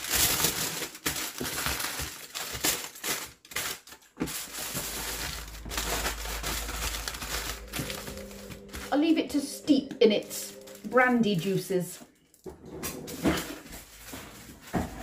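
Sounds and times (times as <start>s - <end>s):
packaging crinkling: 0.0s - 8.9s.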